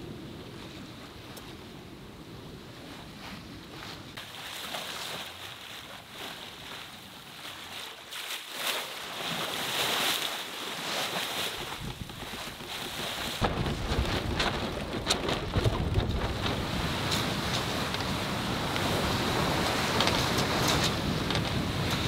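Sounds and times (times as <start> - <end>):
bow wave rushing and splashing: 4.2 - 22.0
wind buffeting microphone: 11.5 - 22.0.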